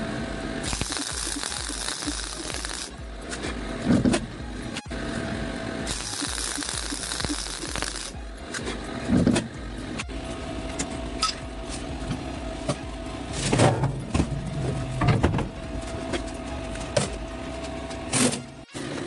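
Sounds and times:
arc welding crackle: 0.5s - 3.3s, 5.8s - 8.4s.

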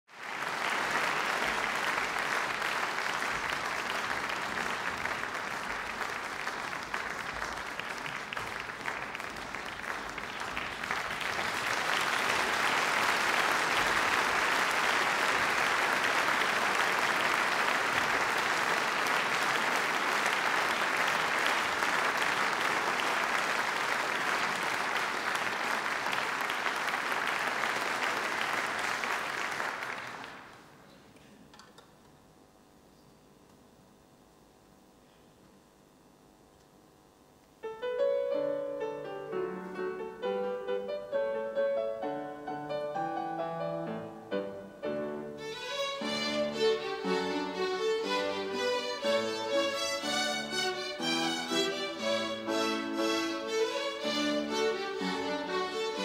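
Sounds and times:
audience applauding: 0.1s - 30.8s, 45.4s - 56.0s.

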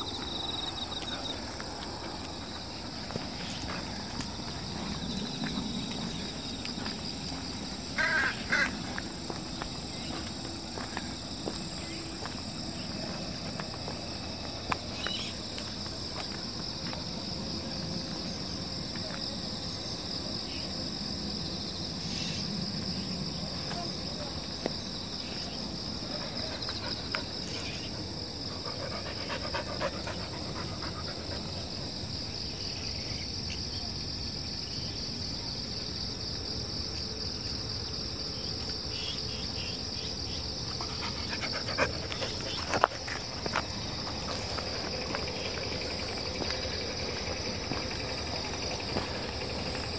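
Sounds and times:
insects trilling: 0.0s - 49.9s.

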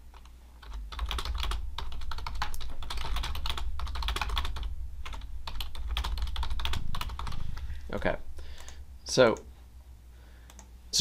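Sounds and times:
steady low hum: 0.0s - 11.0s
keyboard typing: 0.1s - 7.6s, 10.5s - 10.7s.

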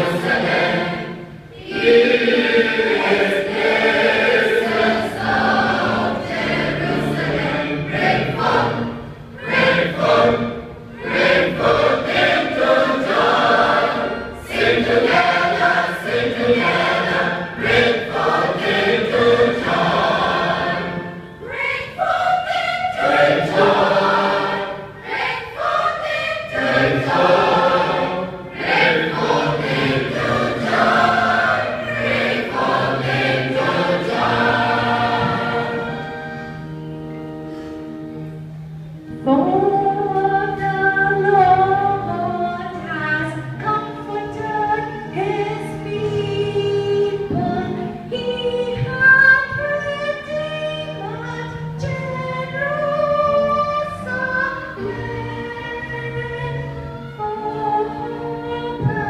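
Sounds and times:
church choir singing: 0.0s - 37.1s.

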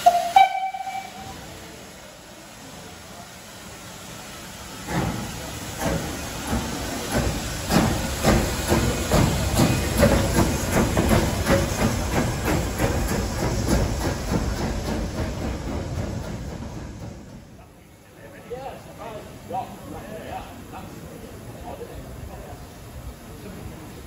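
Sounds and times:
steam locomotive exhaust beats: 0.0s - 17.7s
steam hissing: 0.0s - 24.0s.

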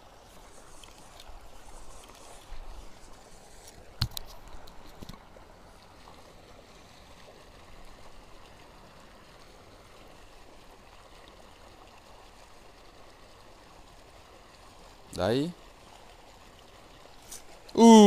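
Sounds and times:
faint outdoor background noise: 0.0s - 18.0s.

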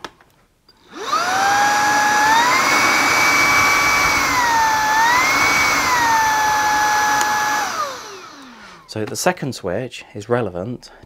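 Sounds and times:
cordless vacuum motor whining: 0.8s - 8.9s.

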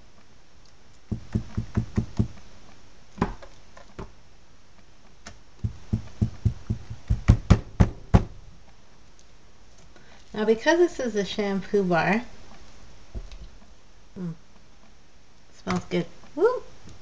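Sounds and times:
spatula knocking against mold: 1.1s - 2.4s, 5.6s - 8.4s.

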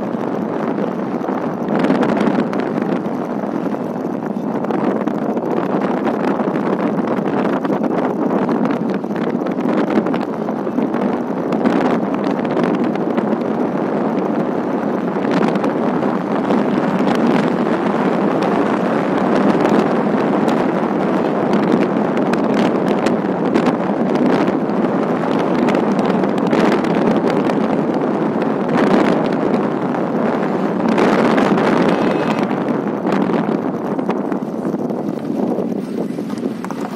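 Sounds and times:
vehicle road noise: 0.0s - 36.9s
wind on microphone: 0.0s - 36.9s.

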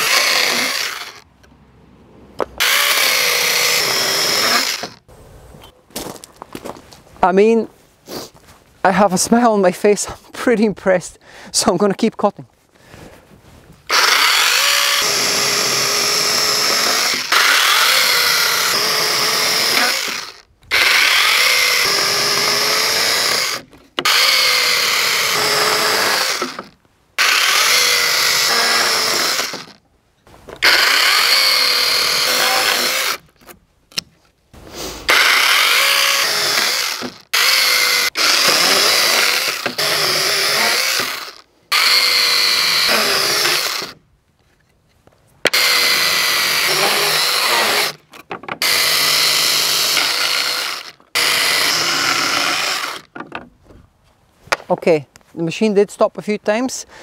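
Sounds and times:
cordless chainsaw cutting log: 0.0s - 1.3s, 2.6s - 5.0s, 13.9s - 29.8s, 30.6s - 33.4s, 35.0s - 44.0s, 45.5s - 53.2s.

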